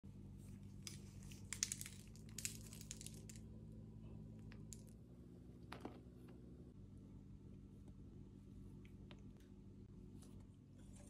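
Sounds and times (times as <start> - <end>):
low steady hum: 0.0 - 11.0
bread crackling and crinkling: 0.7 - 3.5.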